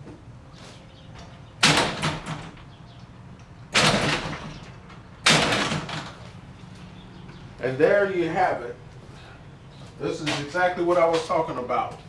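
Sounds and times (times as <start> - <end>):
garage door rattling jolts: 1.6 - 2.7, 3.7 - 6.2.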